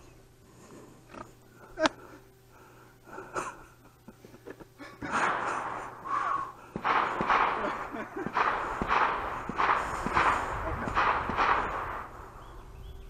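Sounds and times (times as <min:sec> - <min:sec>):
wheezing laughter: 0:01.6 - 0:02.3, 0:03.0 - 0:06.8.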